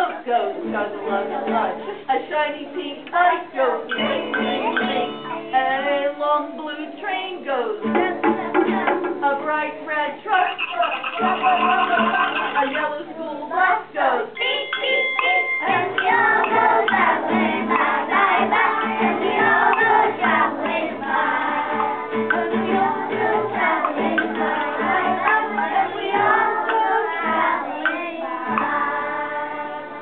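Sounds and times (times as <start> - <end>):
children singing in unison: 0.0 - 30.0
steady ringing tone: 14.4 - 17.0.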